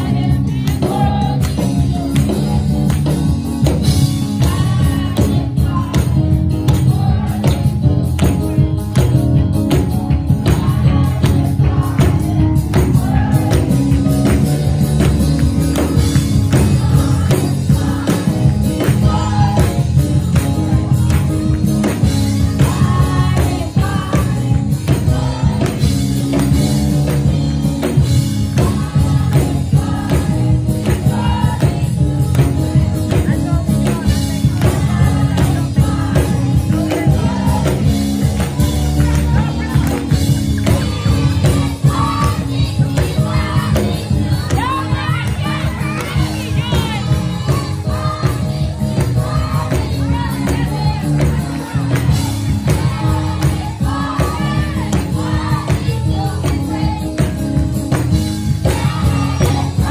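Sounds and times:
heavy bass: 0.0 - 59.9
percussion beat: 0.0 - 59.9
choir singing: 16.5 - 19.9, 22.2 - 26.2, 28.5 - 31.8, 34.5 - 57.3, 58.6 - 59.9.

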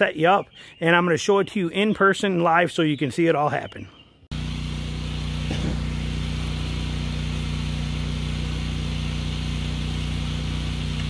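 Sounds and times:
pressure washer engine humming: 4.3 - 11.0.

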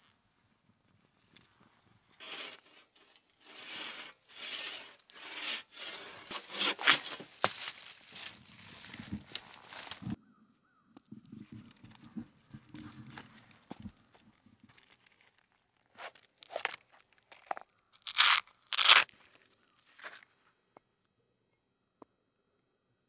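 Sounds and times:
bow saw cutting log: 2.2 - 10.0.

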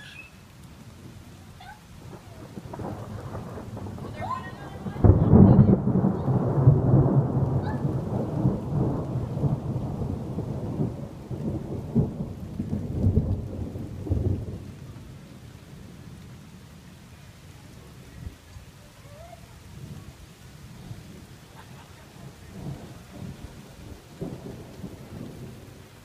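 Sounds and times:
faint hiss: 0.0 - 5.0
thunder rumbling: 0.0 - 16.9, 17.7 - 26.0.

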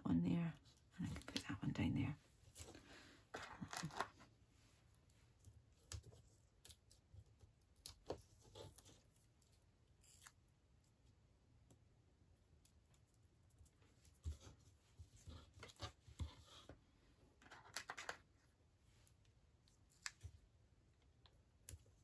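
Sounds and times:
card pieces rustling: 3.3 - 4.2.

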